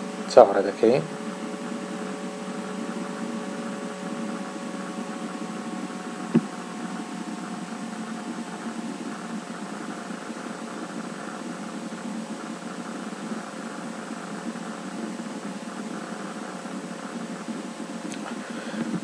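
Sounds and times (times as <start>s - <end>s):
electrical hum and hiss: 0.0s - 19.0s
fan-like background noise: 0.0s - 19.0s.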